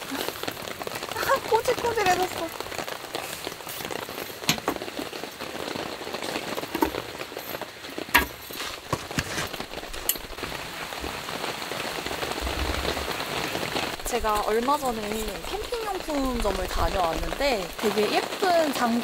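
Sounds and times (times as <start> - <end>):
rain on a tarp: 0.0 - 19.0.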